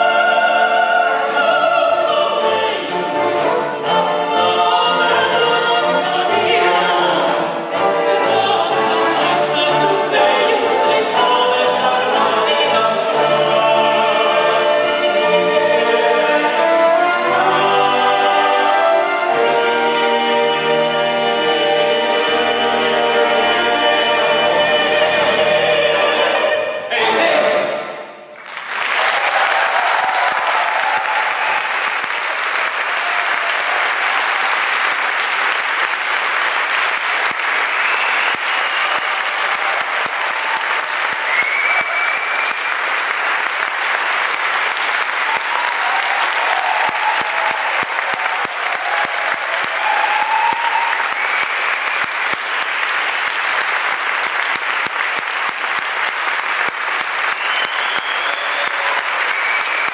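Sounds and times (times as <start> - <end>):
audience applauding: 28.3 - 59.9.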